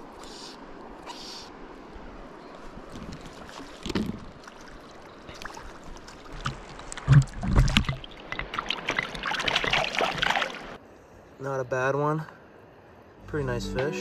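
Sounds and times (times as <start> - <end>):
water splashing and sloshing: 0.0 - 10.8.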